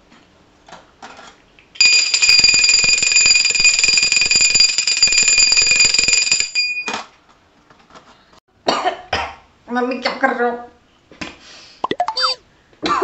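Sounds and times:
small hand bell ringing rapidly: 1.8 - 6.8.

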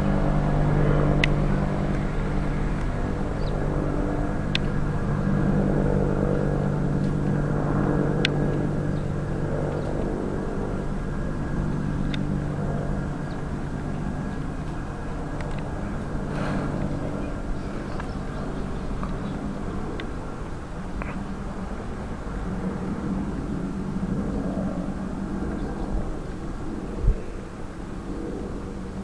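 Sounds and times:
helicopter droning: 0.0 - 29.0
faint sharp ticks: 12.0 - 12.3.

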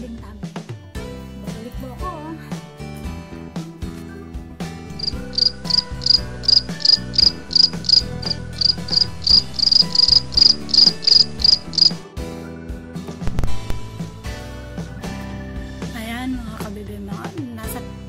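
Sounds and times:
background music: 0.0 - 18.0
cricket chirping: 5.0 - 12.0.

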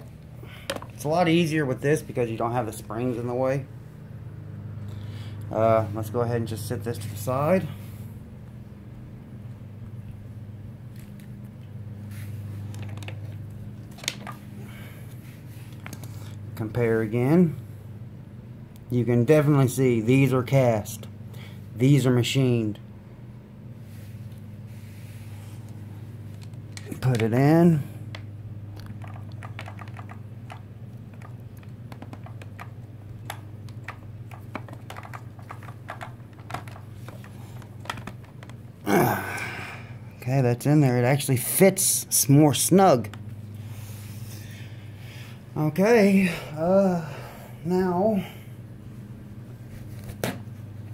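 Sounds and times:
steady low hum: 0.0 - 50.9
plastic parts clicking: 28.8 - 38.6.

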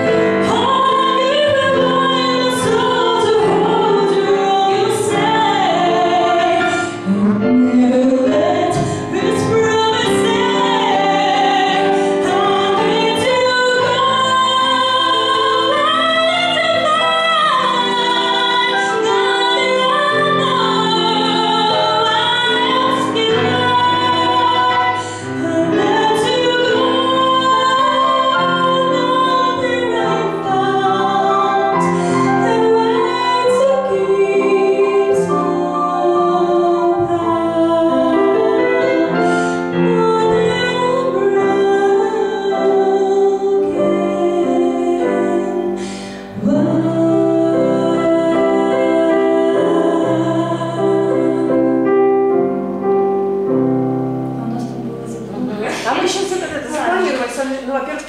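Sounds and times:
woman singing: 0.0 - 51.9
digital piano chords: 0.0 - 58.0.

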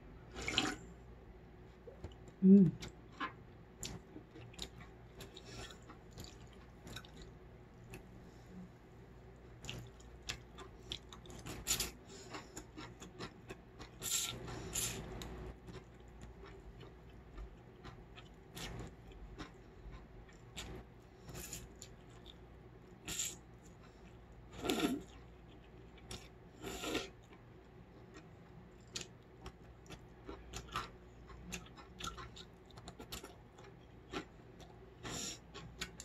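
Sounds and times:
slurping noodles: 0.3 - 0.8.

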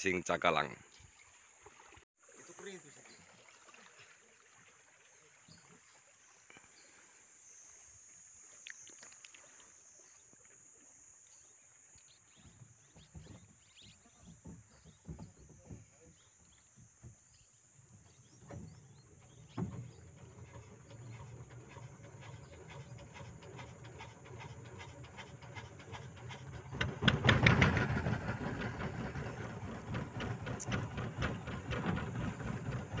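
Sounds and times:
boat engine running: 12.7 - 33.0.

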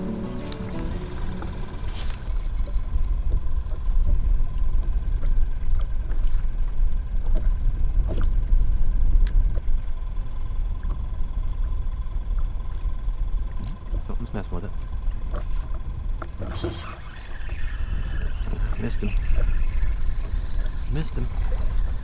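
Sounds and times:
waves lapping against kayak hull: 14.7 - 22.0.

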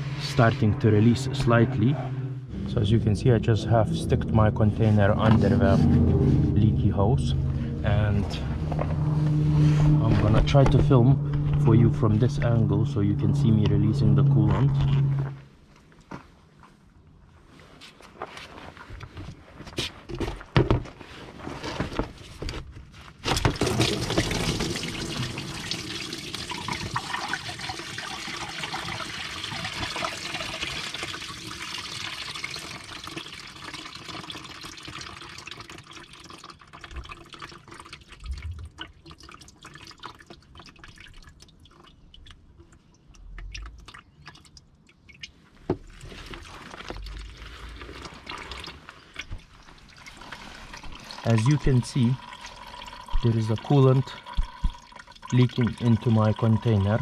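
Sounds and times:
coolant gushing into container: 23.3 - 57.0.

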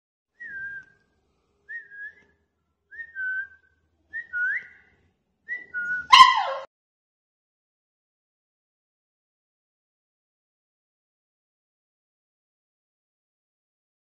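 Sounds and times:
puppy barking: 6.0 - 6.7.

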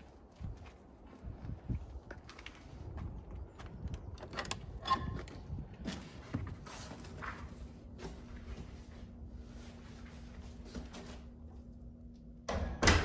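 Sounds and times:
soft footsteps: 0.0 - 4.2, 5.1 - 11.7
faint steady hum: 5.5 - 13.0.

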